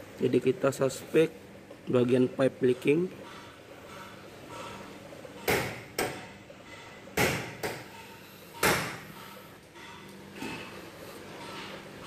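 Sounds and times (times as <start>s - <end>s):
sharp knocks: 5.4s - 6.4s, 7.2s - 8.0s, 8.6s - 9.1s.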